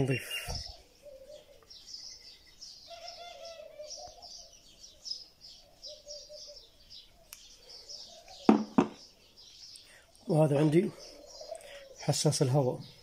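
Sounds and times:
small birds chirping: 0.0s - 13.0s
sharp knocks: 8.5s - 9.0s.

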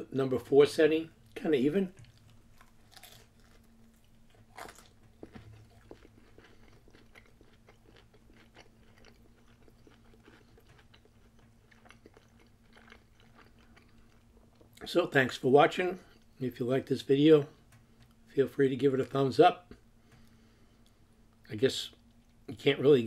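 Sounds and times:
low steady hum: 0.0s - 23.0s
person chewing soft food: 2.0s - 14.9s.

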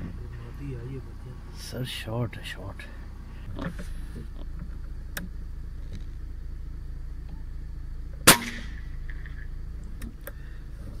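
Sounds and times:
steady low hum: 0.0s - 11.0s
air rifle shot: 8.2s - 8.9s.

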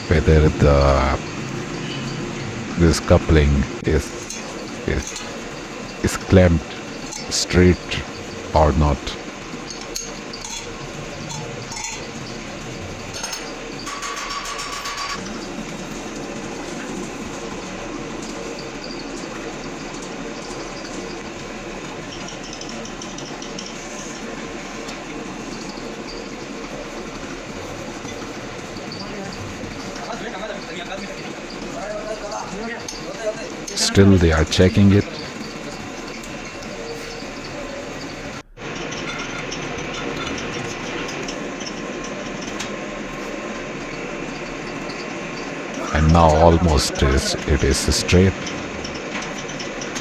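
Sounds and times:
faint hum: 0.0s - 14.0s, 32.8s - 49.9s
lathe running: 0.0s - 50.0s.

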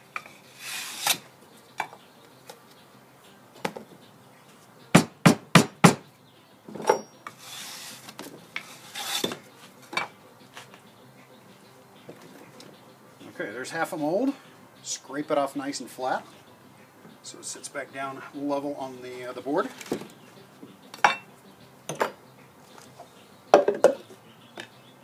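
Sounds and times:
metal scraping: 0.0s - 1.2s, 6.8s - 10.2s.

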